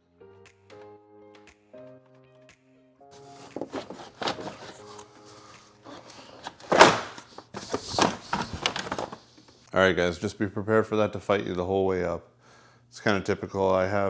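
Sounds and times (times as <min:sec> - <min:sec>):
background music: 0:00.0 - 0:08.2
plastic shroud knocking and scraping: 0:03.4 - 0:05.0, 0:05.9 - 0:09.2.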